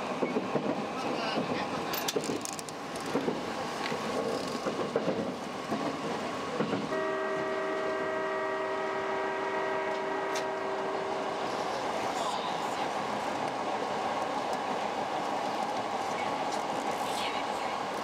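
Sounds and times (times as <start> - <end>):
train horn held: 6.9 - 11.3.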